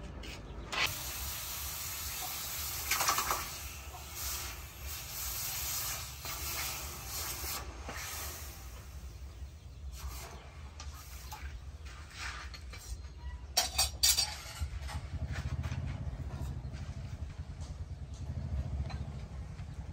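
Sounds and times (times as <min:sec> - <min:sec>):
low rumble: 0:14.6 - 0:19.9.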